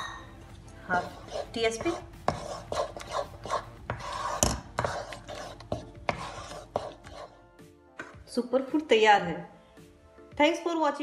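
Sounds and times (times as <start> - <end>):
wooden spoon scraping a pan: 0.8 - 7.4
spoon knocking on pan: 3.8 - 5.2.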